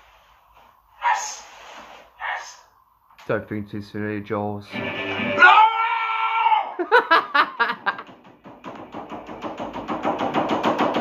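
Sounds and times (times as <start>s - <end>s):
man shouting: 5.4s - 6.8s
rapid knocking on wall: 7.8s - 11.0s.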